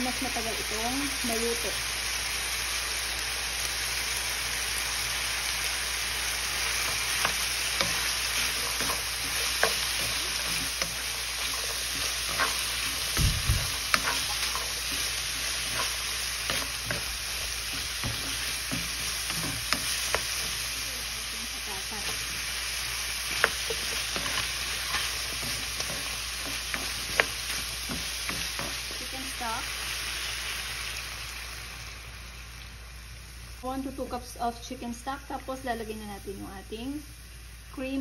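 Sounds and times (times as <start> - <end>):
food sizzling in frying pan: 0.0 - 38.0
wooden spoon scraping pan: 6.7 - 20.7, 23.2 - 29.0
dull low thump: 13.1 - 13.8.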